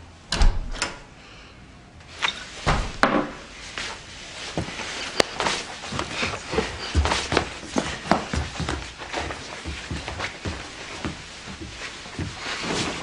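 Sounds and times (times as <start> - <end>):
door thudding shut: 0.3 - 1.0, 2.7 - 3.4.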